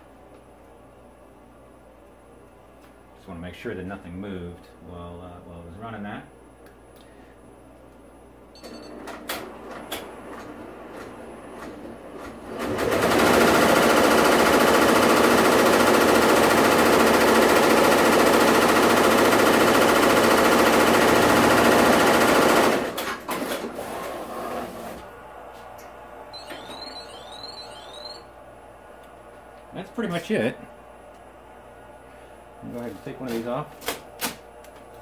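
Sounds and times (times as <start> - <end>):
embroidery machine stitching rattle: 11.6 - 24.1.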